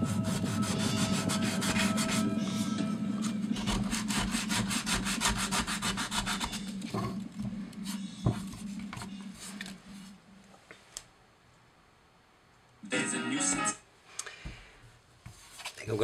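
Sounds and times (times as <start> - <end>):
sandpaper scraping on metal: 0.0 - 2.3, 3.6 - 6.7.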